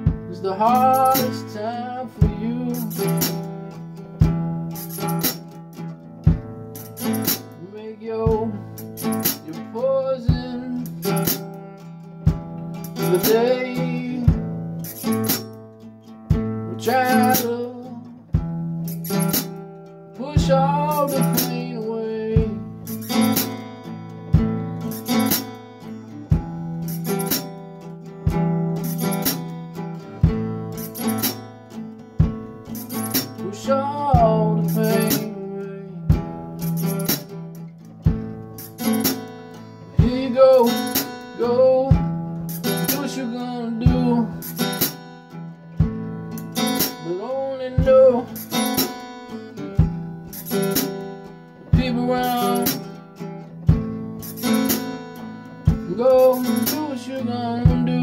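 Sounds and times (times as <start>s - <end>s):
man singing: 0.0s - 3.6s, 7.6s - 11.5s, 12.8s - 14.8s, 16.6s - 18.4s, 20.1s - 23.3s, 33.2s - 36.7s, 39.9s - 44.5s, 46.9s - 48.8s, 51.6s - 53.0s, 55.7s - 58.0s
acoustic guitar strumming: 0.0s - 58.0s.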